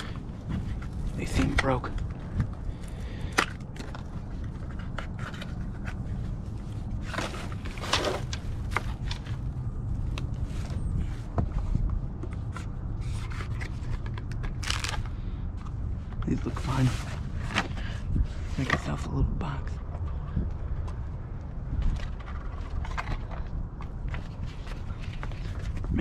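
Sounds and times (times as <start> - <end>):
steady low rumble: 0.0 - 26.0
cardboard boxes and plastic bag rustling: 3.8 - 9.6.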